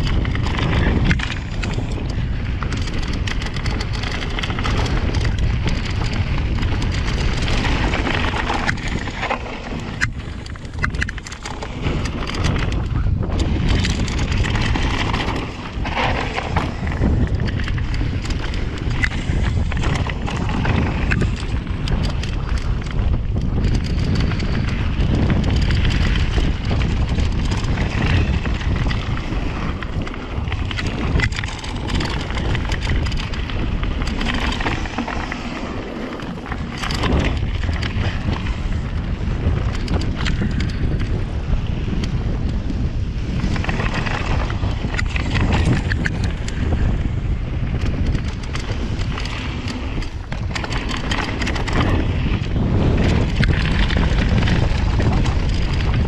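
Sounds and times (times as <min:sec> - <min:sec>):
bike chain and parts rattling: 0:00.0 - 0:56.0
tyres rumbling over dirt and rocks: 0:00.0 - 0:56.0
wind buffeting microphone: 0:00.0 - 0:56.0.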